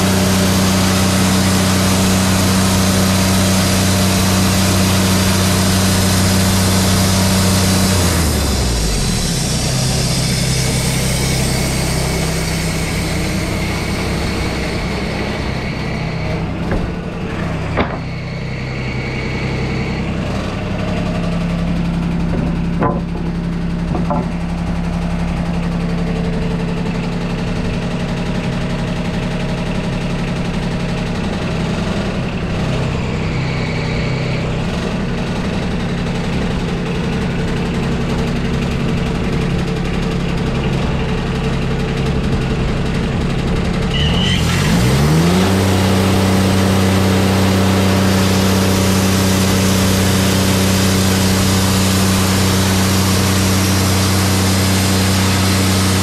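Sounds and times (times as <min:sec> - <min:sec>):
sawmill engine running: 0:00.0 - 0:56.0
sharp knocks of boards: 0:16.7 - 0:17.0, 0:17.8 - 0:18.1, 0:22.3 - 0:23.3, 0:23.9 - 0:24.4.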